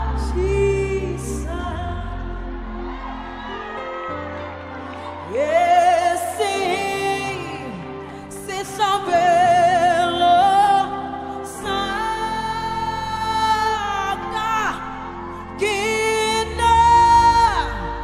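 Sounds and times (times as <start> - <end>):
person singing slow song: 0.0 - 18.0.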